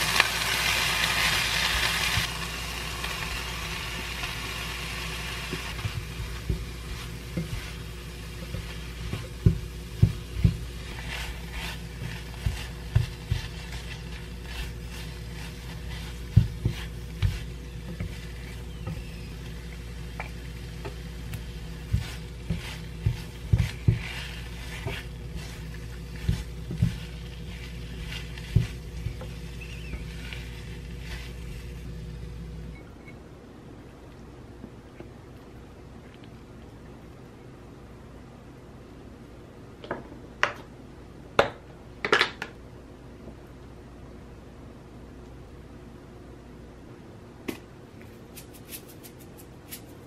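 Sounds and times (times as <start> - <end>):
light sizzle: 0.0 - 33.2, 47.5 - 50.0
steady low hum: 0.0 - 42.0
spatula scraping a pan: 3.0 - 31.9.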